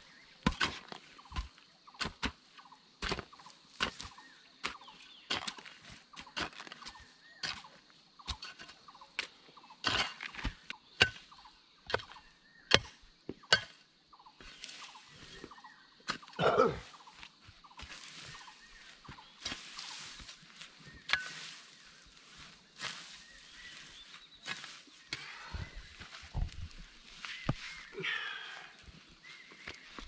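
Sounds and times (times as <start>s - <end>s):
hoe chopping into soil: 0.4s - 7.7s, 17.8s - 25.2s.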